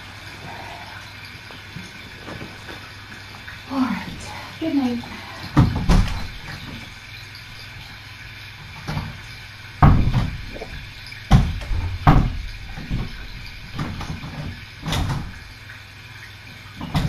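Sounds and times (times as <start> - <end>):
door knocks and thumps: 5.6 - 6.8, 9.8 - 10.6, 11.3 - 13.2.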